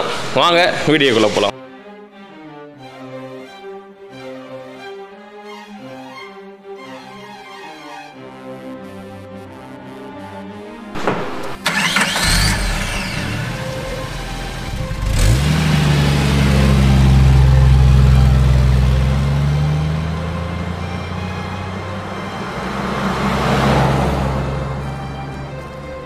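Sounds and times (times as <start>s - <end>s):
simulated engine sound effect: 11.0s - 26.0s.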